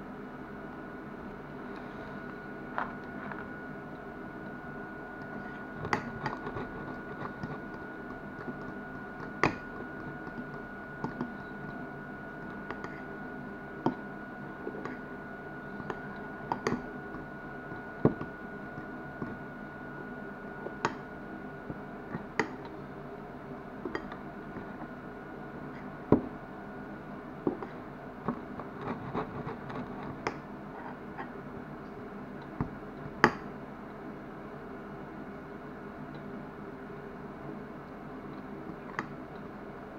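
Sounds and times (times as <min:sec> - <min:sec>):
low background hum: 0:00.0 - 0:39.9
spoon scraping bowl: 0:05.3 - 0:10.5.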